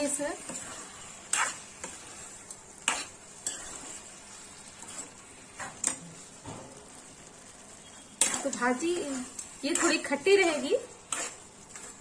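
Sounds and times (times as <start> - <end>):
metal spoon scraping a pan: 0.0 - 6.4, 7.8 - 12.0
curry sizzling: 0.0 - 12.0.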